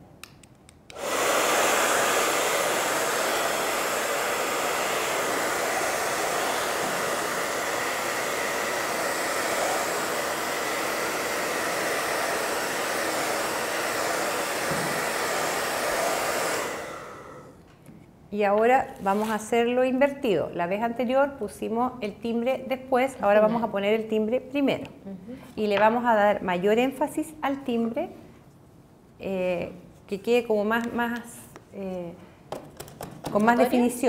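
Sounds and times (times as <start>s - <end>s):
hair dryer blowing: 0.9s - 17.6s.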